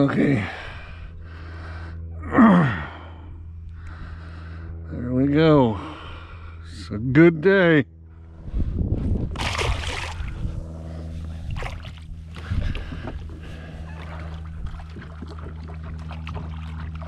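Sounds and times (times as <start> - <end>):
fish splashing in water: 9.4 - 10.4
water sloshing and dripping: 13.9 - 17.0.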